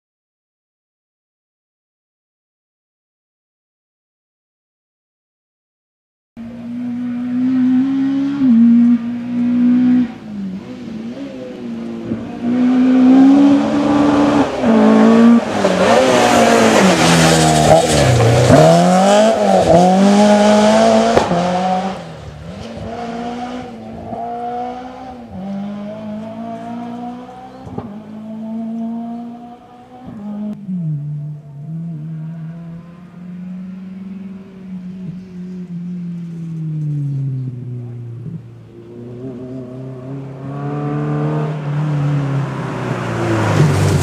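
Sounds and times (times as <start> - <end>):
rally car engine passing at full throttle: 6.4 - 44.0.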